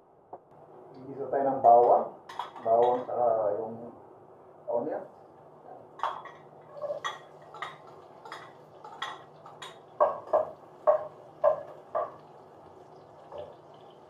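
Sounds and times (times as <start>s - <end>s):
metal spoon clinking on pan: 6.0s - 12.2s
spoon knocking on saucepan: 6.0s - 12.4s.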